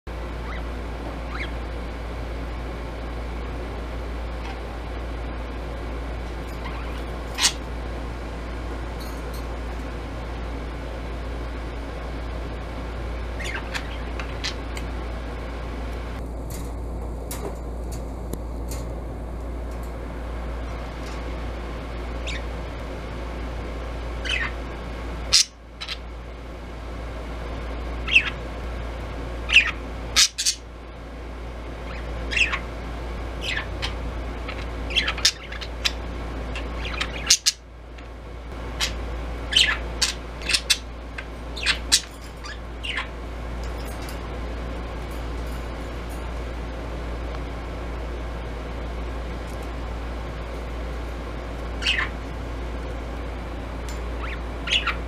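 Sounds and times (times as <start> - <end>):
steady low hum: 0.0 - 55.0
budgerigar chirping: 1.3 - 1.6, 13.4 - 14.6, 24.2 - 24.6, 28.1 - 28.4, 31.9 - 32.6, 33.4 - 33.9, 34.5 - 36.0, 38.8 - 40.8, 41.6 - 43.1, 51.8 - 52.2, 54.2 - 55.0.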